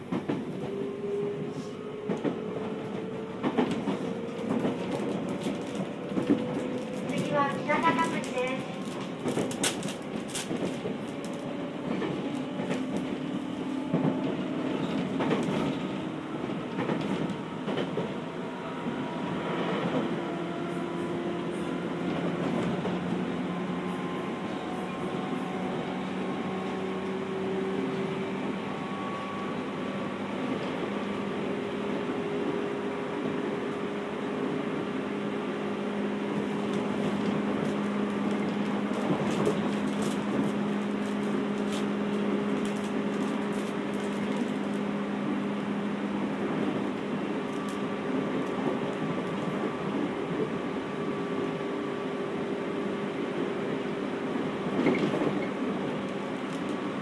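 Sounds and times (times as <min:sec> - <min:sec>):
train motor and gear hum: 0:00.0 - 0:57.0
train rolling noise: 0:00.0 - 0:57.0.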